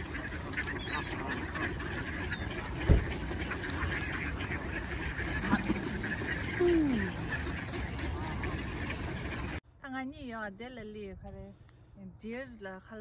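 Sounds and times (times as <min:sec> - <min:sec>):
ducks quacking: 0:00.0 - 0:09.6
geese honking: 0:00.0 - 0:09.6.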